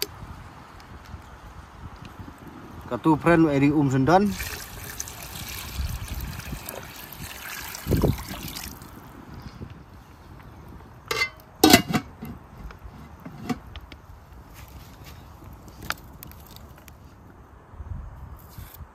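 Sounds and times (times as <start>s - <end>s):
water running: 4.3s - 8.8s.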